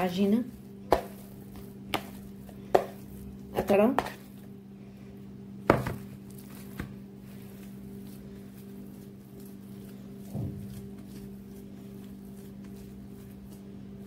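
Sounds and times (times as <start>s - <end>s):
steady low hum: 0.0s - 14.0s
dull thump of dough: 5.7s - 7.0s.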